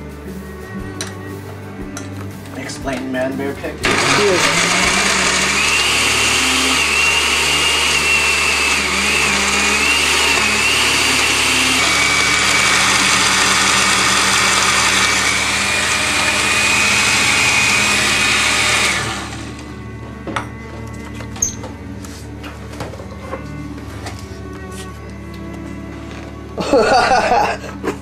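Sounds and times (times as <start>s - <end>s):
blender motor whine: 3.8s - 19.9s.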